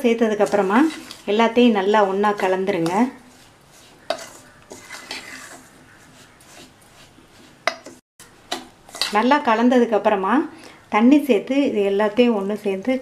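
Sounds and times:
metal spoon scraping steel bowl: 0.3 - 9.5.

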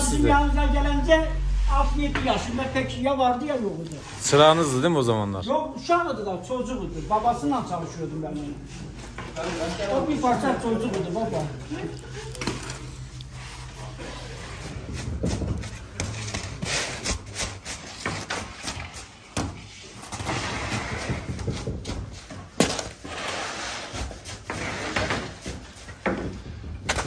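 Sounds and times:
low steady hum: 0.0 - 17.8.

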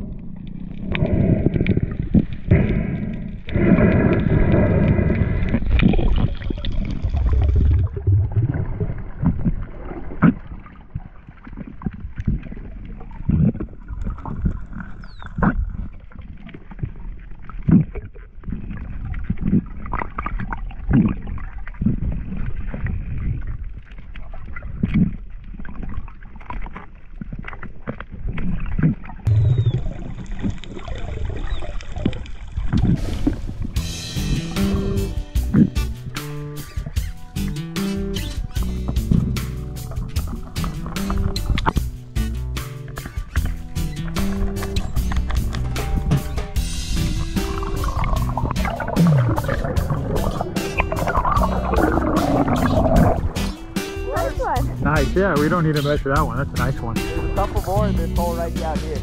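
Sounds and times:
muffled underwater rumble and gurgling: 0.0 - 59.0
underwater clicks and knocks: 38.2 - 57.8
heavy rumble with low hum: 45.0 - 55.3.

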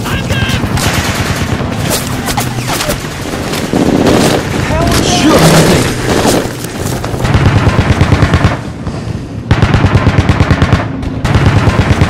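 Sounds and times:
automatic gun firing bursts: 0.6 - 3.4, 7.2 - 8.6, 9.5 - 12.0.

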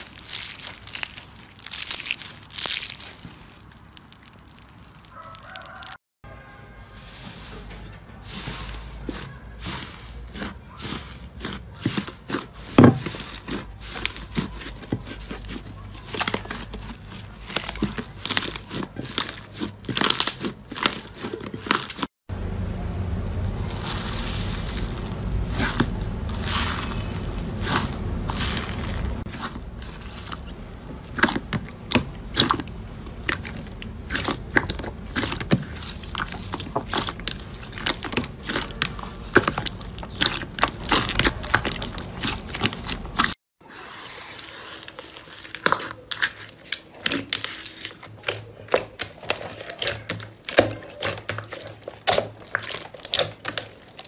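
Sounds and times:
foam-bead slime crunching: 0.0 - 6.0, 6.8 - 54.0
hands squishing slime: 0.0 - 6.0, 8.2 - 22.1, 23.5 - 54.0.

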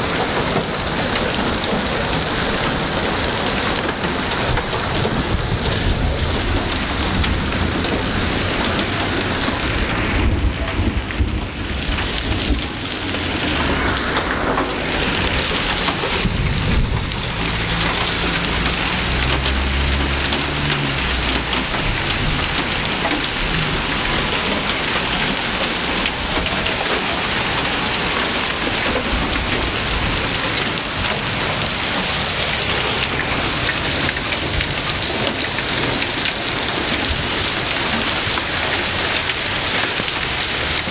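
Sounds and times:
hail and rain clattering: 0.0 - 40.9
hailstones knocking on cars: 0.0 - 40.9
low rumble: 4.5 - 24.6.

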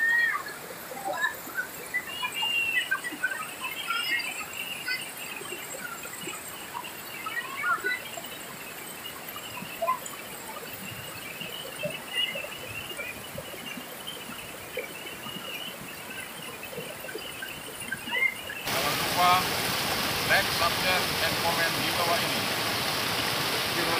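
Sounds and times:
high chirps and squeaks: 1.2 - 19.4
water rushing over rocks: 1.4 - 23.9.

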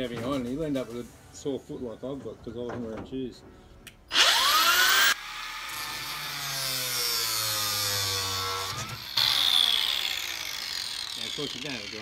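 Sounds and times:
angle grinder whining: 4.1 - 12.0
grinder cutting plastic pipe: 4.1 - 12.0.

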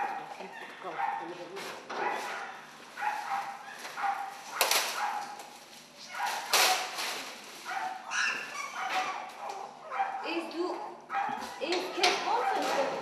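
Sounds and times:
dogs barking and whining: 0.0 - 6.9, 7.6 - 13.0
plastic sheet rustling: 1.3 - 9.7, 12.3 - 13.0.

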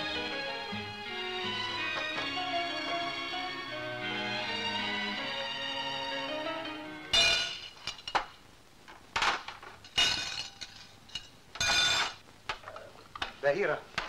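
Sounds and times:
background music: 0.0 - 7.8
glassware and crockery shattering: 7.1 - 8.3, 9.2 - 12.2.

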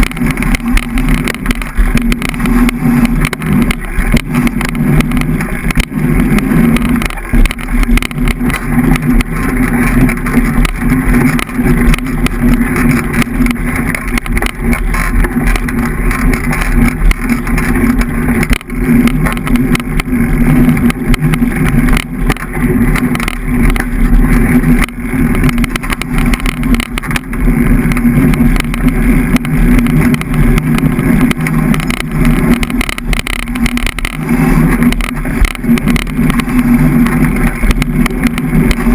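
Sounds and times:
bike rolling rumble: 0.0 - 38.9.

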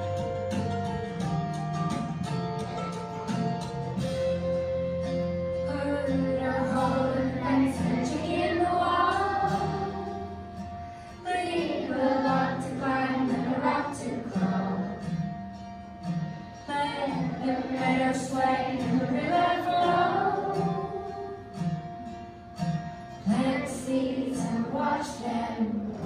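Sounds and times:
song with singing: 5.6 - 15.4, 16.7 - 21.7, 23.2 - 26.0.

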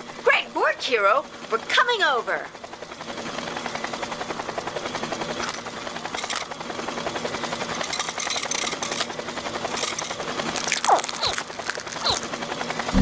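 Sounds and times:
fast rotor-like chopping whir: 2.6 - 13.0.

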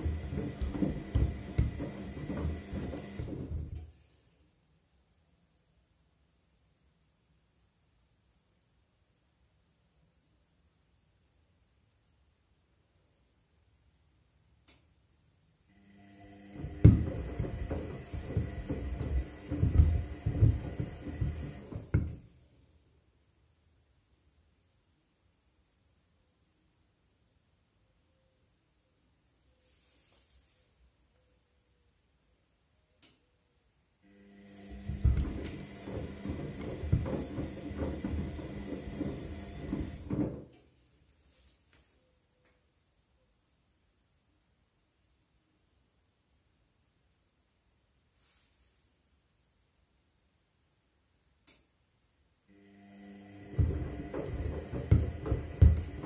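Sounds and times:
shoes thumping in drum: 0.0 - 3.5, 16.6 - 22.1, 53.6 - 56.0
washing machine motor humming: 0.0 - 3.9, 15.7 - 22.2, 34.0 - 40.4, 52.5 - 56.0.

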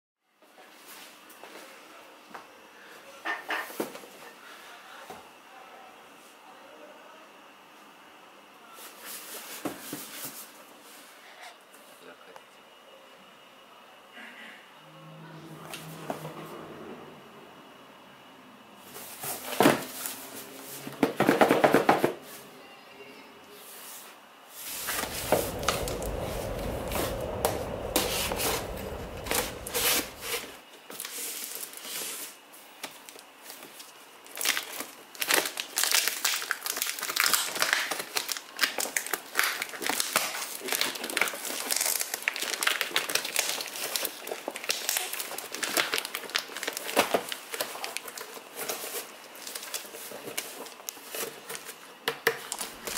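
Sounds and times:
paper envelope crinkling and tearing: 34.3 - 51.6.

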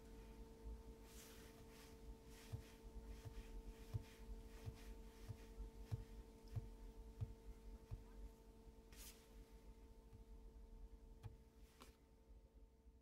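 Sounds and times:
faint electrical hum: 0.0 - 13.0
soft low thumps: 1.6 - 8.4.

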